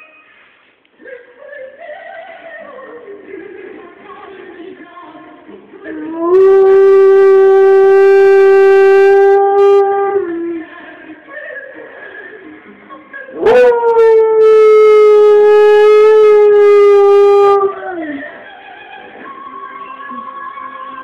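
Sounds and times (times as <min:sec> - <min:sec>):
dog howling: 0:05.9 - 0:10.6, 0:13.4 - 0:18.2.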